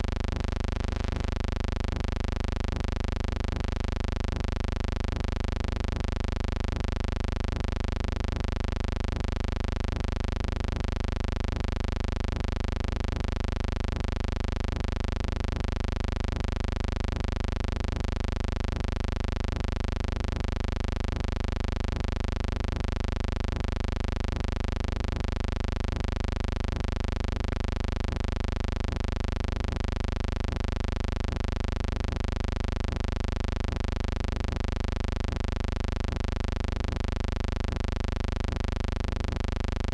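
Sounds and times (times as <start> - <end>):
electrical buzzing hum: 0.0 - 8.5.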